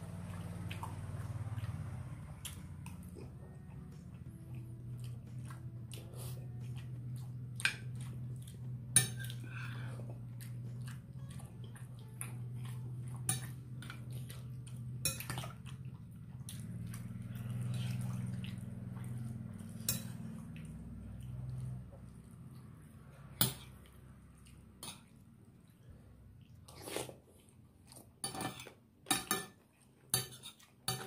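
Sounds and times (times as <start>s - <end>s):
steady low hum: 0.0s - 26.6s.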